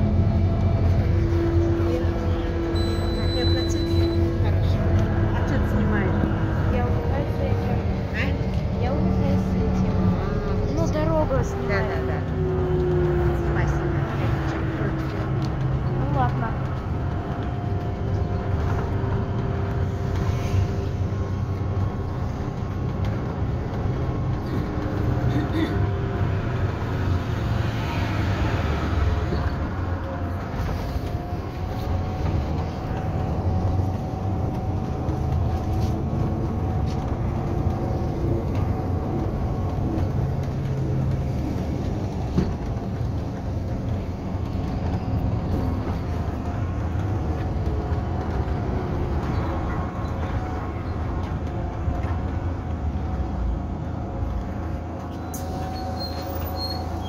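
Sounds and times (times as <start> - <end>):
trolleybus interior rumble: 0.0 - 57.0.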